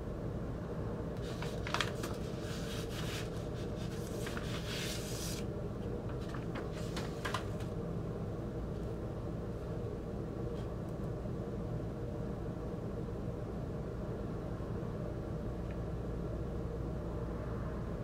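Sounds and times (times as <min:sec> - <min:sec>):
low background hum: 0:00.0 - 0:18.0
paper sleeve rustling and scraping: 0:01.2 - 0:05.5, 0:06.1 - 0:07.7.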